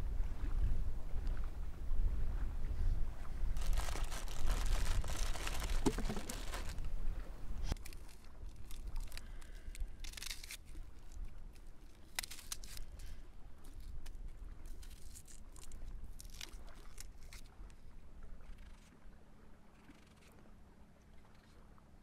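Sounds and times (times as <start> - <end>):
knife peeling onion skin: 7.7 - 11.2, 11.9 - 13.0.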